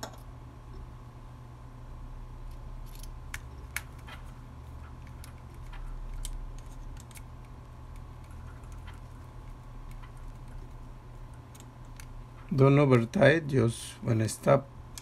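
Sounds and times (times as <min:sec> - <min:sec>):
steady low hum: 0:00.0 - 0:15.0
faint clicks and ticks: 0:03.3 - 0:12.7.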